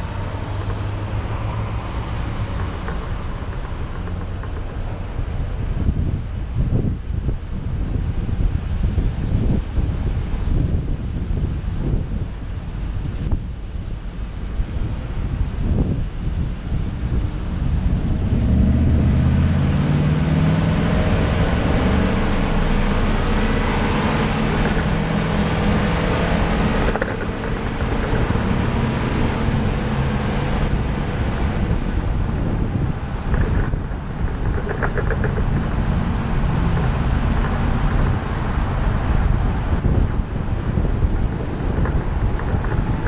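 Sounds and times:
bus engine: 0.0s - 43.0s
road noise: 0.0s - 43.0s
knocks and rattles: 0.1s - 5.4s, 24.4s - 25.2s, 25.8s - 29.6s, 33.2s - 38.2s, 41.2s - 43.0s.

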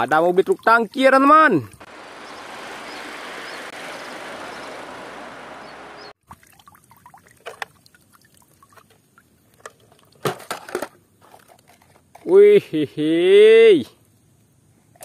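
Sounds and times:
truck driving on road: 1.8s - 6.2s.

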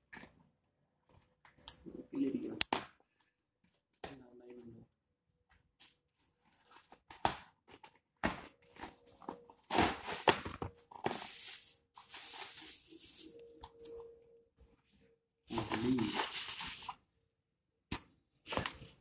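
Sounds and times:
plastic bag crinkling: 15.5s - 17.0s.

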